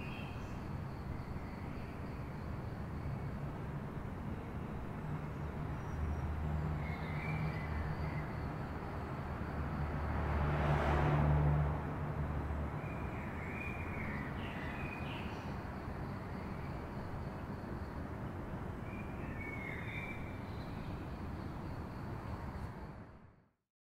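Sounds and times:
distant traffic: 0.0s - 23.4s
vehicle passing close: 9.3s - 12.8s.

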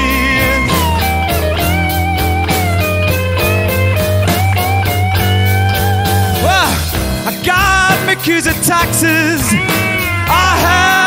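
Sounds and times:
person singing: 0.0s - 1.4s, 6.3s - 11.0s
blues band playing: 0.0s - 11.0s
lead guitar bent notes: 0.0s - 11.0s.

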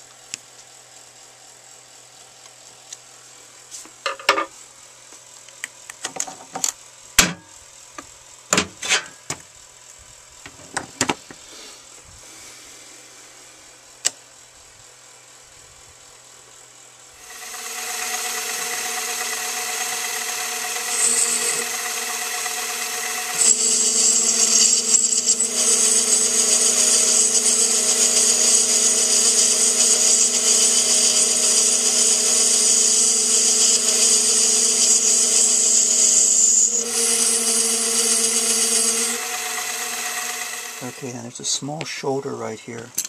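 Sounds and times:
lathe motor whine: 17.0s - 41.4s
lathe cutting metal: 17.2s - 41.3s.

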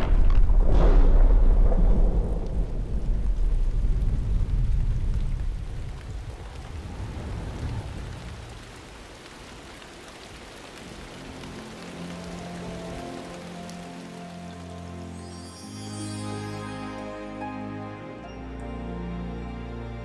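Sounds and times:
deep thunder rumble: 0.0s - 9.0s
steady rain: 0.0s - 20.0s
soft sustained music notes: 10.7s - 20.0s.

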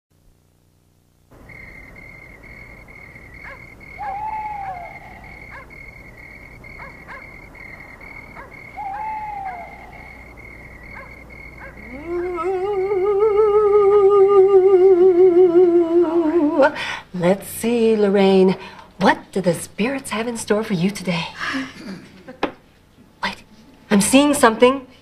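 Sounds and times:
high chirping chorus: 1.4s - 13.2s
owl hooting: 1.4s - 14.9s.

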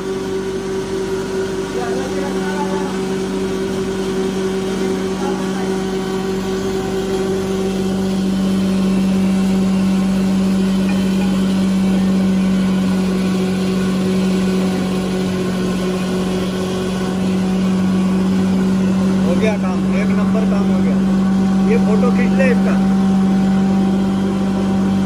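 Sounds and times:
motor hum: 0.0s - 25.0s.

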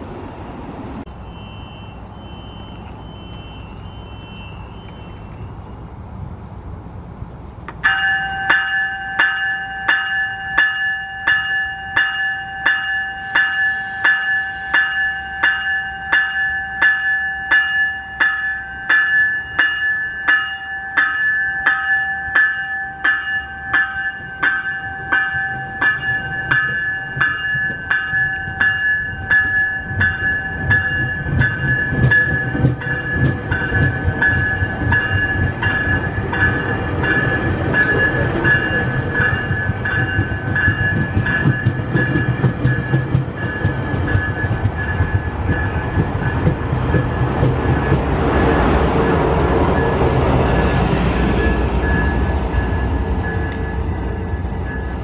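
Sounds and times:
train rumble: 0.0s - 55.0s
bell ringing: 7.8s - 47.8s.

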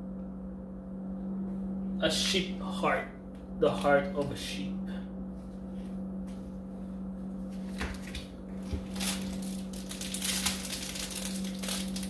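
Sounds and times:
low hum: 0.0s - 12.0s
plastic packaging crinkling: 7.7s - 12.0s.

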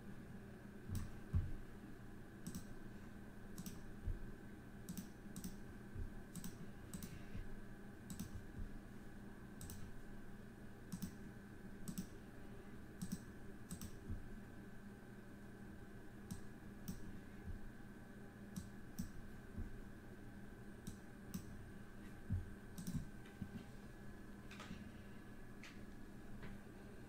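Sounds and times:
faint steady hum: 0.0s - 27.0s
computer mouse clicking: 0.9s - 1.2s, 2.4s - 2.8s, 3.5s - 3.9s, 4.9s - 5.6s, 6.3s - 7.2s, 8.1s - 8.5s, 9.6s - 10.0s, 10.9s - 11.2s, 11.8s - 12.2s, 13.0s - 14.1s, 16.3s - 17.1s, 18.5s - 19.2s, 20.8s - 21.5s, 22.7s - 23.1s.

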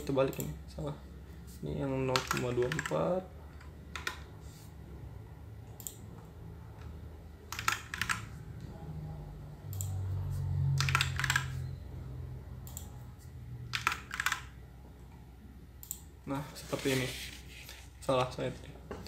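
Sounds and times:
computer keyboard typing: 2.0s - 4.3s, 6.8s - 8.4s, 10.7s - 11.6s, 13.6s - 14.6s
low hum: 8.2s - 13.8s.

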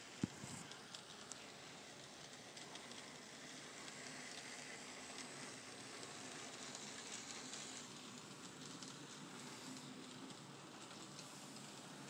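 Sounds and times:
model train running on track: 0.0s - 12.0s.

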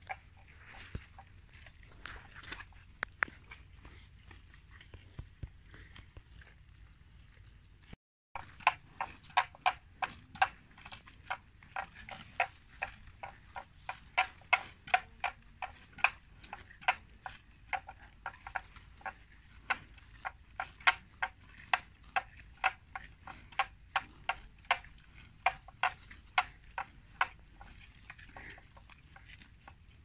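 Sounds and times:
buffalo tearing grass: 8.4s - 30.0s.

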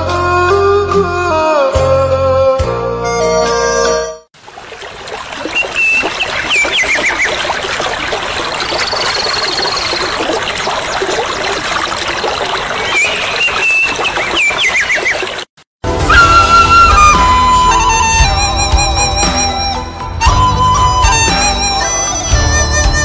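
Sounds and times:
falling water rushing: 4.4s - 18.2s
birds chirping and trilling: 5.3s - 15.4s.

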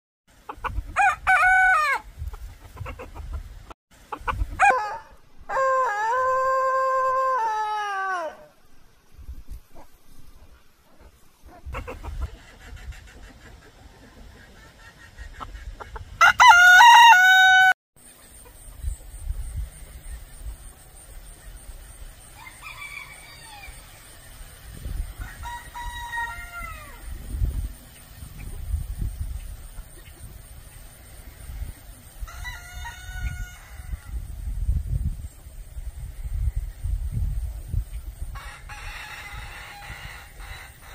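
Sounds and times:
rooster crowing: 4.6s - 8.5s, 16.2s - 17.8s, 22.4s - 23.9s, 25.2s - 27.1s, 32.2s - 34.2s, 38.4s - 40.9s.

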